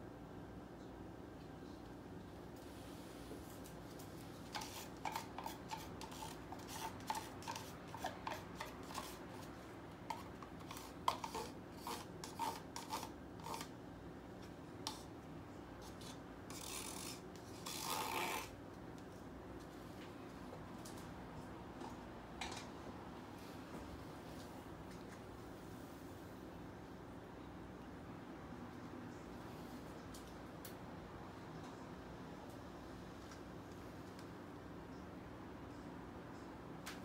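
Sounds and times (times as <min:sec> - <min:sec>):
stick scraping plastic cup: 0:04.4 - 0:13.7, 0:14.8 - 0:15.1, 0:15.8 - 0:18.6.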